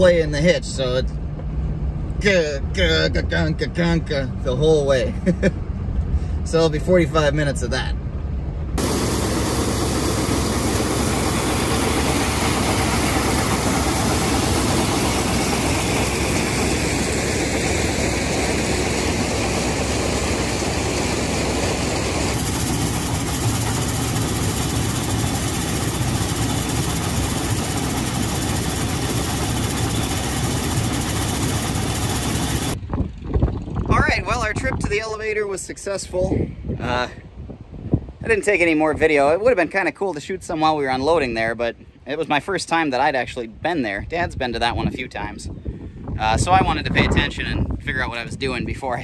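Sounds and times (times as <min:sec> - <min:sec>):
corn sheller running: 0:08.8 - 0:32.8.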